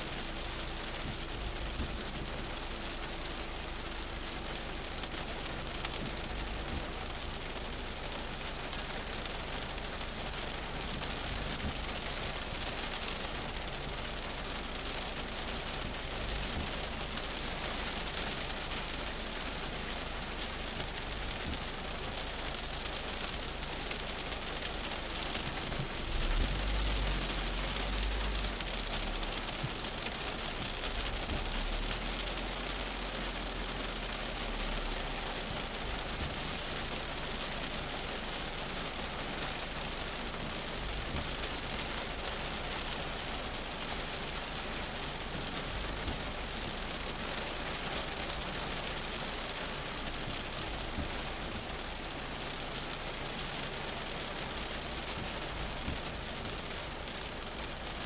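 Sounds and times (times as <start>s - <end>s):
heavy rain on a car: 0.0s - 58.0s
low rumble: 23.7s - 36.6s.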